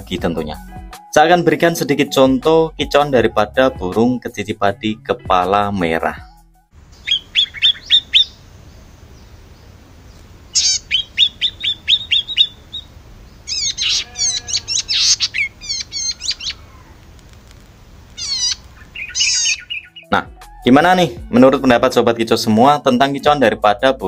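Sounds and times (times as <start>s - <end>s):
small bird chirping and warbling: 6.9s - 20.1s.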